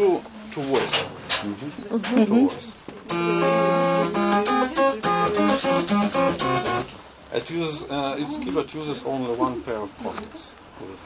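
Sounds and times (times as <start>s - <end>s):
buzzy synthesizer notes: 3.1s - 7.0s.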